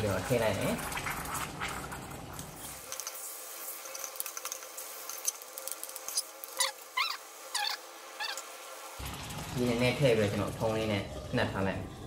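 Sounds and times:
liquid pouring into pot: 0.0s - 4.6s, 9.0s - 12.0s
spoon squeaking against metal: 6.1s - 8.4s.

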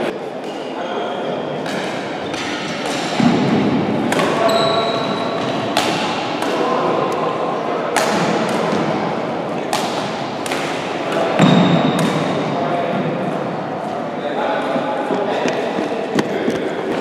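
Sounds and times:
murmur of voices: 0.0s - 17.0s
rackets hitting shuttlecock: 1.6s - 13.1s.

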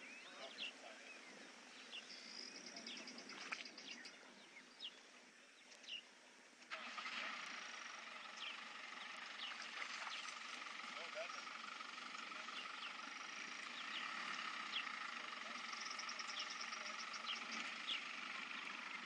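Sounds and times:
vehicle engine running: 5.7s - 19.0s.

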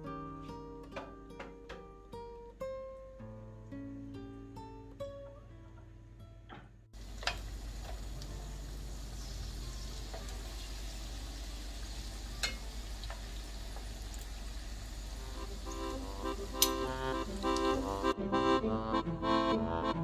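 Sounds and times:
samosas sizzling in hot oil: 7.0s - 18.1s
metal spoons clinking against pan: 12.4s - 12.6s, 16.6s - 16.9s.

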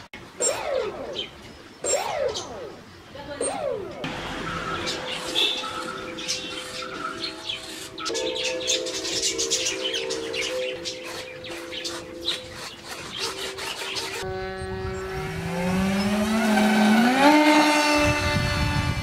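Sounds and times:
background music with held notes: 4.4s - 13.6s
model airplane motors whining: 10.8s - 19.0s.

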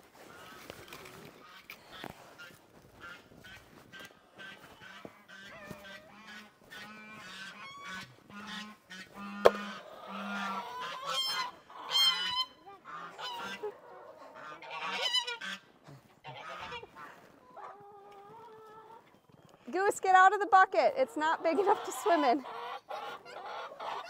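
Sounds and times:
geese honking: 2.4s - 17.3s, 21.3s - 24.0s
sharp knock: 9.4s - 9.7s.

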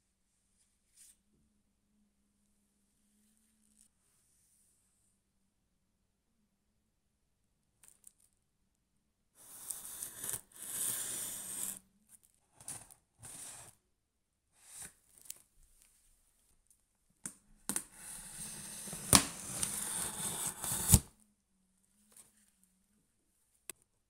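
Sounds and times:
knife slicing packing tape: 9.5s - 11.8s, 18.2s - 21.1s.

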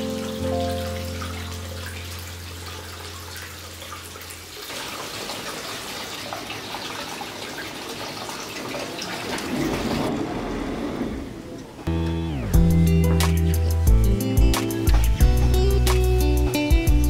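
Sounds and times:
water trickling into a bath: 0.0s - 10.1s.

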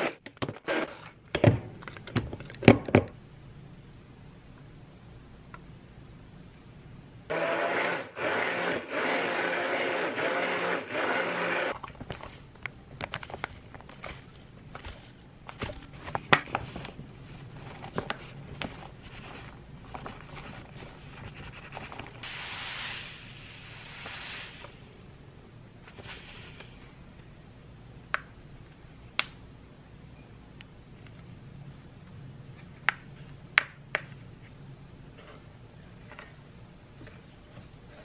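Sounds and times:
stick blender whirring: 7.3s - 12.3s.

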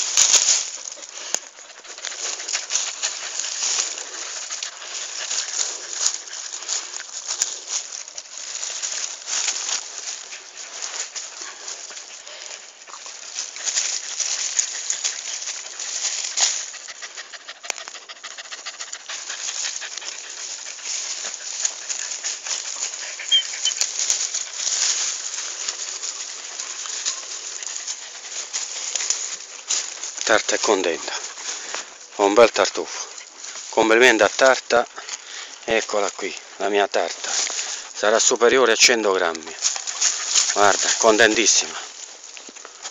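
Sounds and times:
soil and leaves scraped by hand: 0.0s - 42.9s.

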